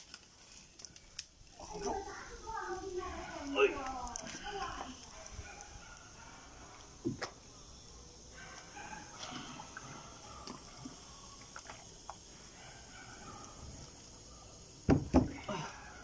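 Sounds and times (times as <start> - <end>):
water sloshing and dripping: 0.0 - 6.0, 8.4 - 12.4
knock in plastic tub: 14.9 - 15.3.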